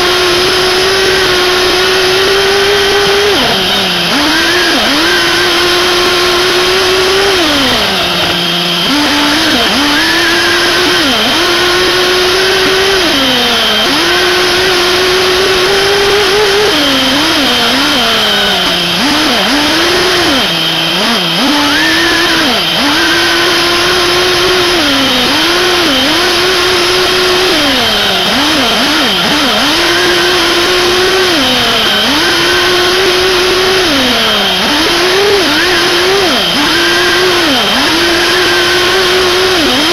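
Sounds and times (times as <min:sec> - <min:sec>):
nitro engine buzzing scream: 0:00.0 - 0:39.9.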